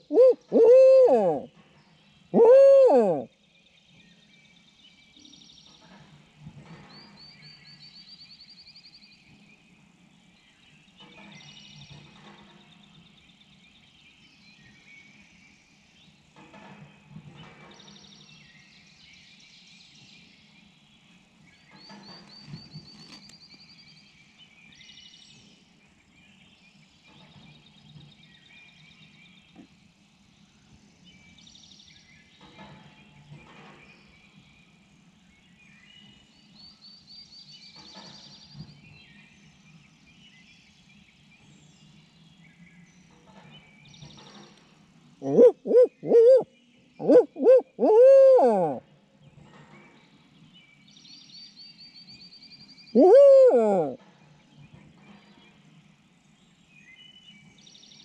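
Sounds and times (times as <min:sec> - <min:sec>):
owl hoot call: 0:00.0 - 0:01.5, 0:02.4 - 0:03.3, 0:45.2 - 0:46.4, 0:47.0 - 0:48.8, 0:53.0 - 0:54.0
songbirds singing: 0:00.0 - 0:58.0.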